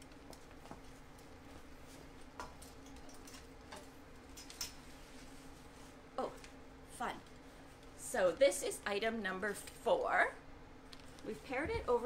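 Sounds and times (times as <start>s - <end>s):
faint clicks and taps: 0.0s - 4.7s.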